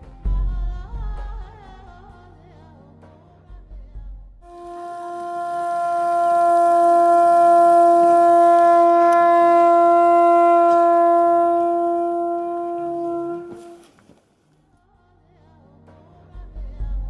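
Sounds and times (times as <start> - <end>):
conch shell trumpet note: 4.4 - 14.0.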